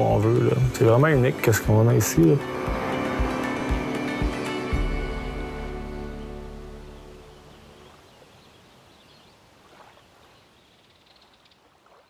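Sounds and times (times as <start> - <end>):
held music chord: 0.0 - 7.9
faint outdoor ambience: 0.0 - 12.0
bird chirps: 6.7 - 11.7.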